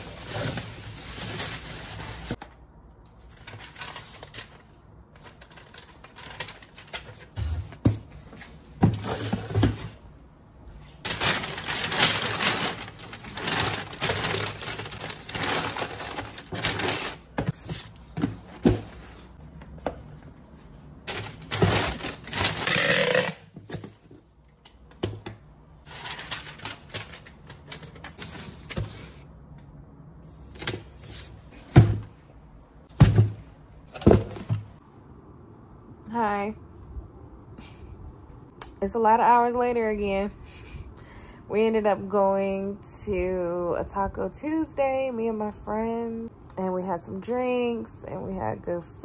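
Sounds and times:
packing paper crinkling: 0:00.0 - 0:02.4, 0:03.2 - 0:07.5, 0:11.0 - 0:17.5, 0:21.0 - 0:23.4, 0:25.9 - 0:28.5
box handling knocks and thumps: 0:08.8 - 0:10.0, 0:31.6 - 0:32.1, 0:32.9 - 0:34.8.

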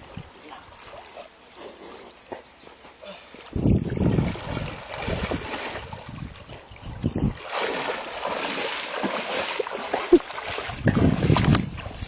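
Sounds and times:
person wading through water: 0:02.7 - 0:12.0.

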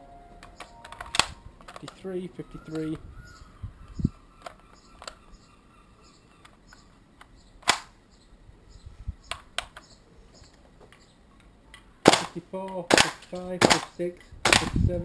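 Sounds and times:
airsoft rifle clicks: 0:00.4 - 0:02.1, 0:04.4 - 0:05.2, 0:06.3 - 0:08.0, 0:09.3 - 0:09.9
airsoft rifle shot: 0:07.6 - 0:08.0, 0:12.0 - 0:14.8.

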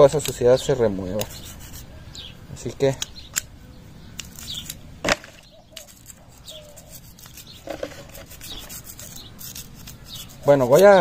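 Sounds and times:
brush scrubbing metal: 0:01.0 - 0:01.9, 0:05.9 - 0:11.0.

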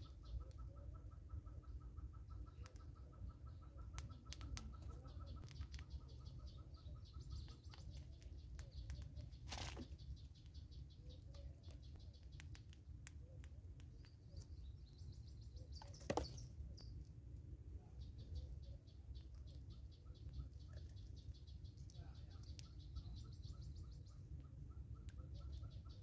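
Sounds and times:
distant birds calling: 0:00.0 - 0:17.0, 0:17.8 - 0:26.0
sharp clicks: 0:11.7 - 0:14.2.

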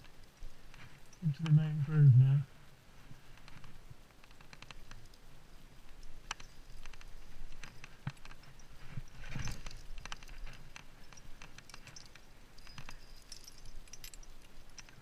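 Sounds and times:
climbing gear clicking: 0:05.9 - 0:15.0.

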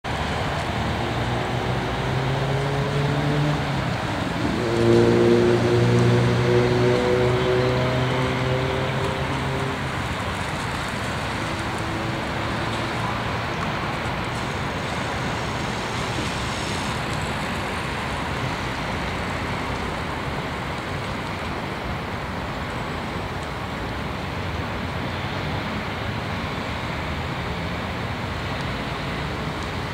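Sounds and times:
road traffic rumble and hiss: 0:00.0 - 0:29.9.

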